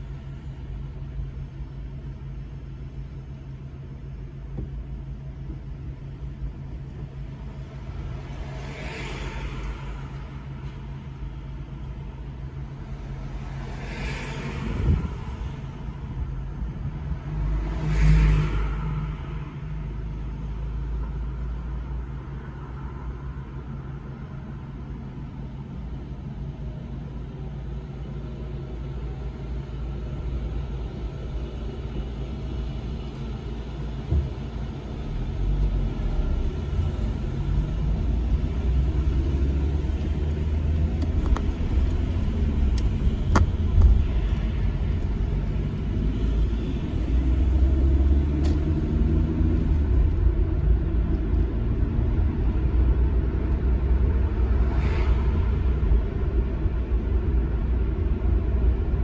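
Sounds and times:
car engine idling: 0:00.0 - 0:08.4
vehicles passing: 0:00.0 - 0:59.0.

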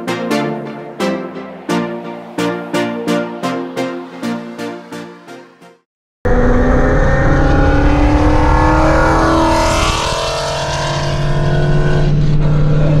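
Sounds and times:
car engine while driving: 0:06.3 - 0:13.0.

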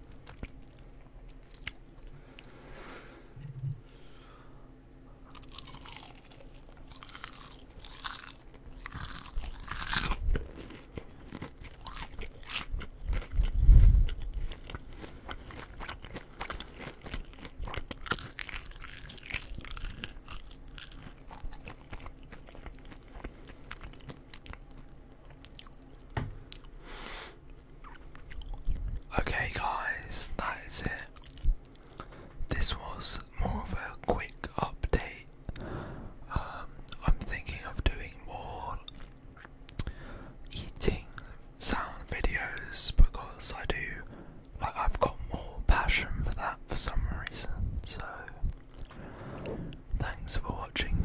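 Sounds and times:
crunchy chewing: 0:00.0 - 0:02.6, 0:05.3 - 0:26.8, 0:27.4 - 0:32.8, 0:47.8 - 0:50.2.

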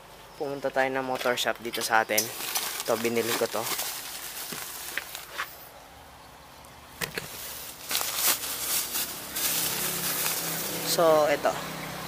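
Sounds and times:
plastic bag crinkling: 0:02.2 - 0:05.6, 0:07.1 - 0:11.1.

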